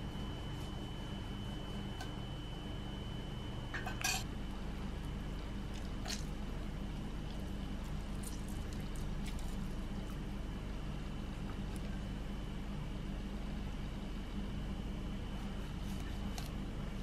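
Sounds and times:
steady low hum: 0.0s - 17.0s
squishy spurts of juice: 5.7s - 6.4s, 7.3s - 10.2s.

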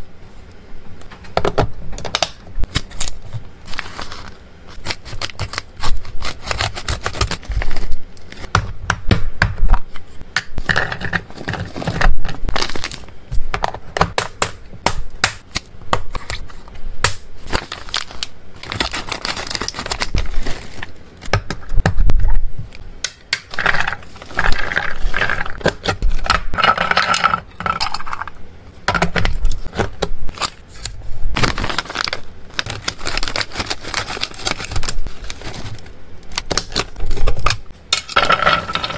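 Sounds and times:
packaging crinkling: 2.1s - 8.5s, 11.3s - 13.2s, 17.4s - 21.0s, 29.3s - 38.9s
scissors snipping plastic: 4.8s - 8.4s.

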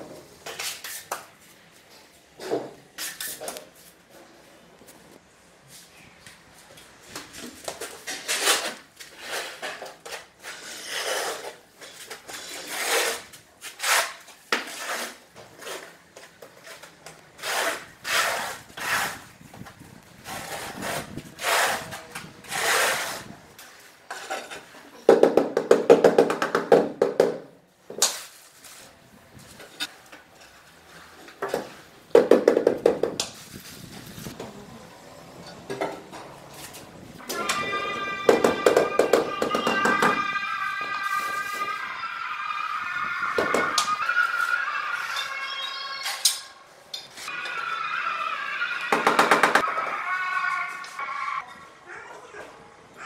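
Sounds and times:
trowel scraping adhesive on concrete: 8.1s - 16.0s, 17.4s - 19.3s, 20.3s - 23.3s.

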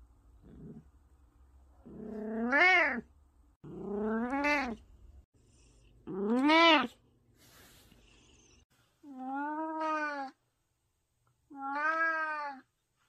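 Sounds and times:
cat meowing: 9.1s - 10.4s, 11.5s - 12.7s.

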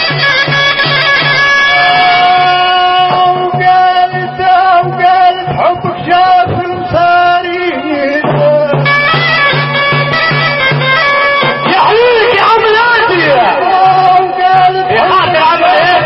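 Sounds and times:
drum beat: 0.0s - 16.0s
reedy wind instrument melody: 0.0s - 16.0s
man singing: 1.6s - 9.6s, 11.6s - 16.0s.

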